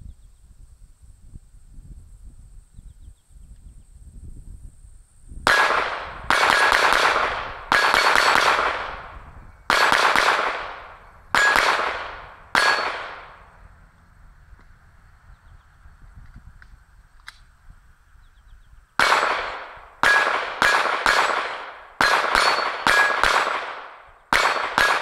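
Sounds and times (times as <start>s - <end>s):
pistol shots: 5.5s - 13.6s, 19.0s - 25.0s
steel target plate ringing: 10.6s - 13.6s, 19.1s - 23.3s.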